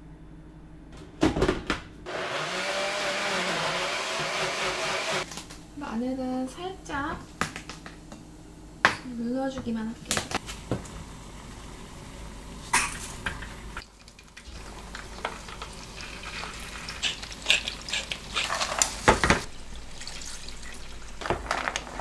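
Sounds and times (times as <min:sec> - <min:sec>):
seafood sizzling in frying pan: 0:13.9 - 0:19.5.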